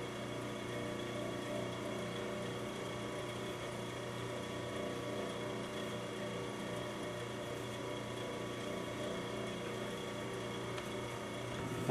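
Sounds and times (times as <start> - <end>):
steady mechanical hum: 0.0 - 11.9.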